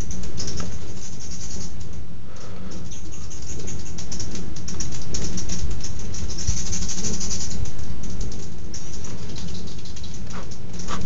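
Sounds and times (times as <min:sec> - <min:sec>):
hummingbirds chittering: 0:00.0 - 0:11.0.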